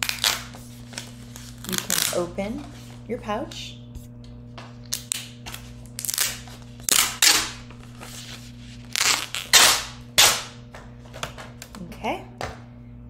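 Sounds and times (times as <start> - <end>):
plastic pouch crackling: 0.0 - 2.2, 4.9 - 10.0
steady low hum: 0.0 - 13.0.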